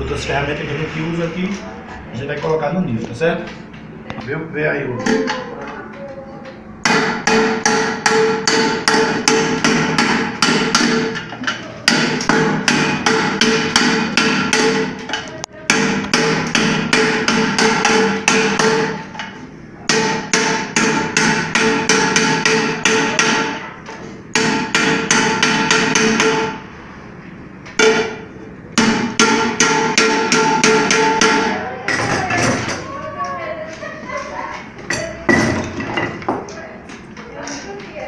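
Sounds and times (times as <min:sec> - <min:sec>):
wooden mallet striking metal pot: 0:06.8 - 0:19.0, 0:19.9 - 0:23.6, 0:24.3 - 0:26.6, 0:27.8 - 0:28.2, 0:28.8 - 0:32.7.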